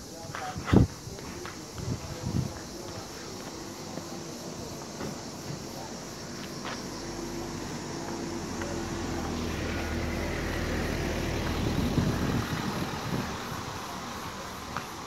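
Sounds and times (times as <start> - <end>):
car driving past: 7.1 - 14.7.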